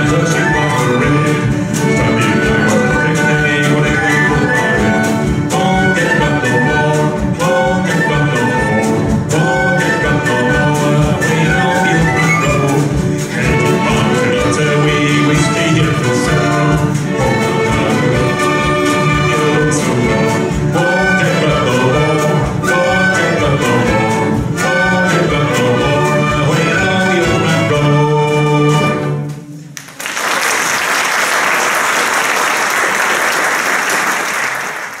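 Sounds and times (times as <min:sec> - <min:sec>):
string and flute ensemble playing: 0:00.0 - 0:29.8
audience applauding: 0:29.8 - 0:35.0.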